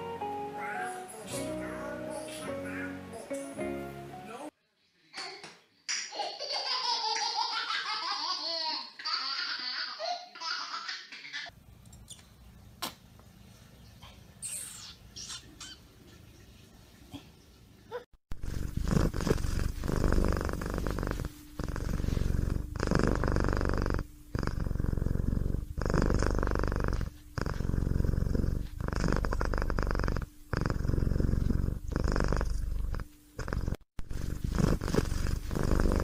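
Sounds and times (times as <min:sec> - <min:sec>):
cat purring: 0:18.3 - 0:36.0.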